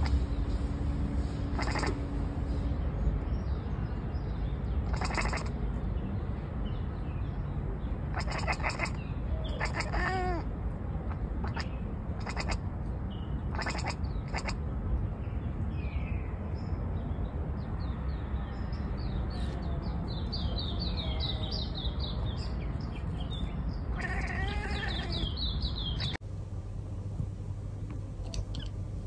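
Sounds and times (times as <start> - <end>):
cat chattering: 0.0 - 0.2, 1.5 - 2.0, 4.8 - 5.6, 8.1 - 12.7, 13.4 - 14.7, 23.4 - 26.2
low outdoor rumble: 0.0 - 29.0
bird chirping: 1.6 - 10.4, 11.1 - 26.2.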